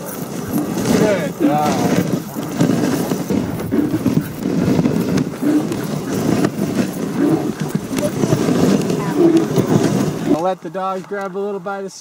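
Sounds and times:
paws and sled runners on snow: 0:00.0 - 0:12.0.

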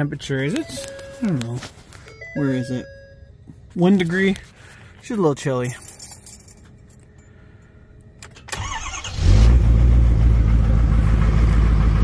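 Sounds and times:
diesel engine idling: 0:09.6 - 0:12.0.

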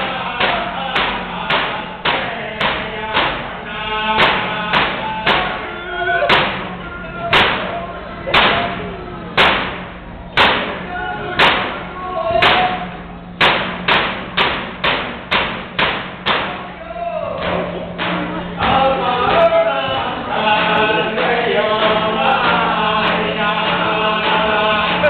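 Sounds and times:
group singing: 0:00.0 - 0:09.6, 0:17.4 - 0:25.0
frame drums beating: 0:00.0 - 0:16.7, 0:17.3 - 0:25.0.

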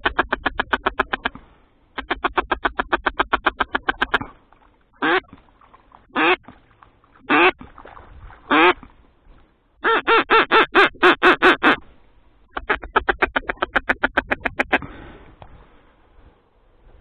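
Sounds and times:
duck quacking: 0:00.0 - 0:01.4, 0:02.0 - 0:04.3, 0:05.0 - 0:05.3, 0:06.1 - 0:06.4, 0:07.3 - 0:07.6, 0:08.5 - 0:08.8, 0:09.8 - 0:11.8, 0:12.5 - 0:14.9.

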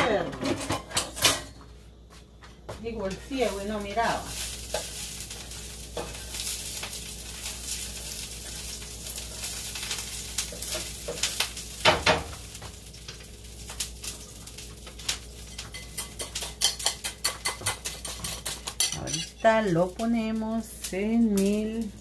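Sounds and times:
metal utensils clattering: 0:00.2 - 0:01.5, 0:15.5 - 0:19.4
food sizzling in a frying pan: 0:02.8 - 0:22.0.

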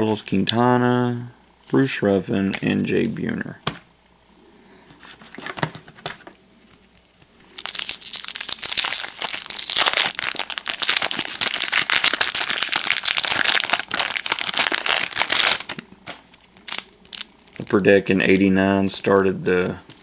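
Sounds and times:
foil wrapper tearing and crinkling: 0:06.9 - 0:18.5.

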